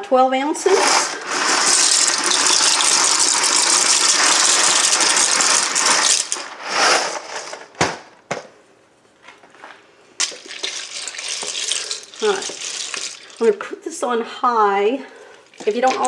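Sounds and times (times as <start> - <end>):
dry pasta pouring rattle: 0.7 - 7.6, 10.2 - 13.6.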